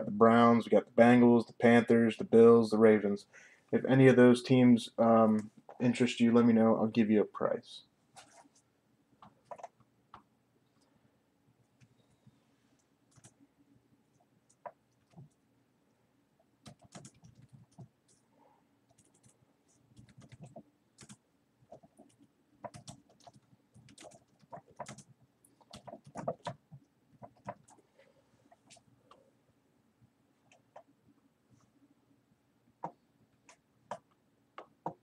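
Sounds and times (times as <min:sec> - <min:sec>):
keyboard typing clicks: 0:09.4 - 0:09.8, 0:20.0 - 0:26.6.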